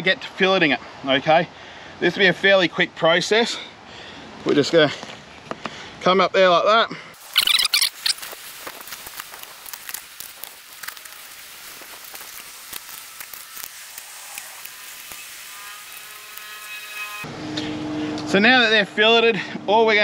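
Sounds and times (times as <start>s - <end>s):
knife crackling through fish bones: 8.0s - 16.6s.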